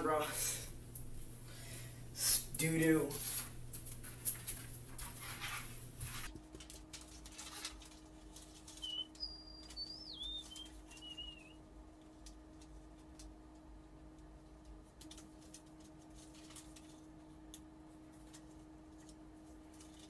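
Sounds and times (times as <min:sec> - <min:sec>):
paper rustling and shuffling: 0:03.1 - 0:09.0, 0:14.8 - 0:17.4, 0:18.0 - 0:20.0
high gliding chirps: 0:08.8 - 0:11.6.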